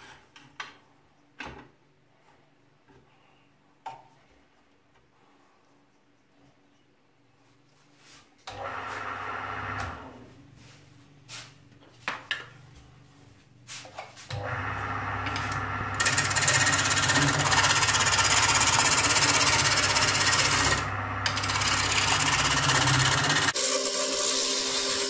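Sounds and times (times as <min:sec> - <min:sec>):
lathe motor humming: 0:14.4 - 0:25.0
gouge cutting spinning wood: 0:14.6 - 0:25.0.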